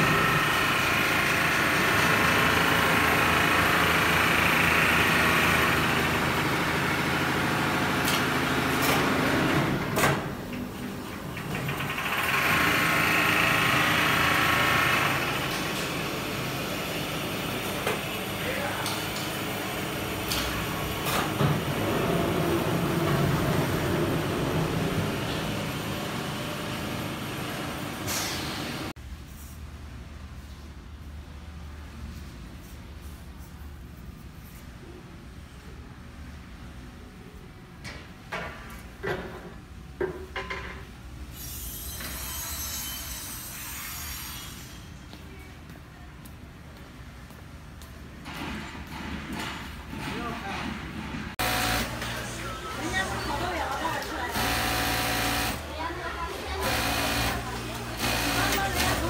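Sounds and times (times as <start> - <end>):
factory machinery rumbling: 19.4 - 28.9.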